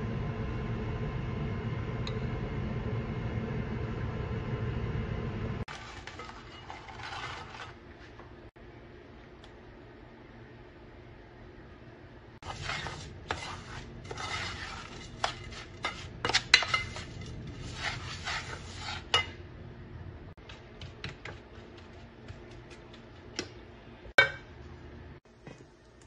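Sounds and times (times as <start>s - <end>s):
spoon scraping crumbs in pan: 5.7s - 8.2s, 12.4s - 19.4s.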